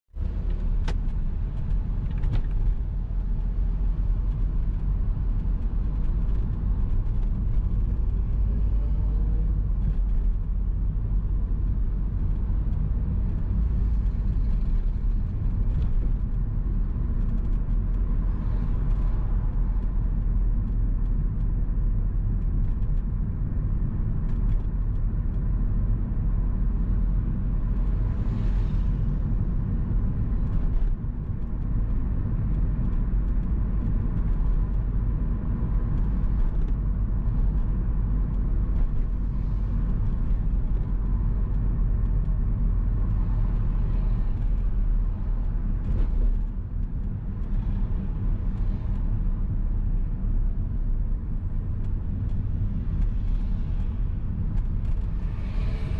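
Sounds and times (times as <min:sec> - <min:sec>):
car engine and road noise: 0:00.0 - 0:55.9
passing traffic: 0:00.1 - 0:55.9.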